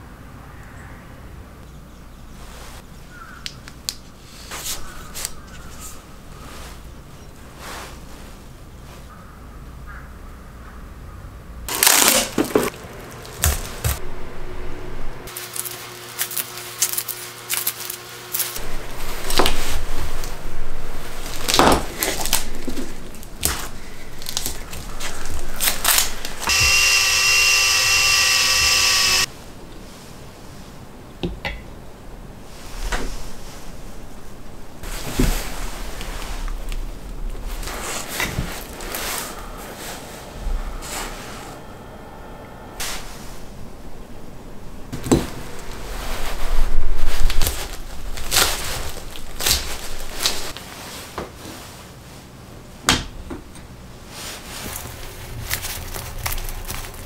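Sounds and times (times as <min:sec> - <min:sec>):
cordless drill running: 0:26.4 - 0:29.3.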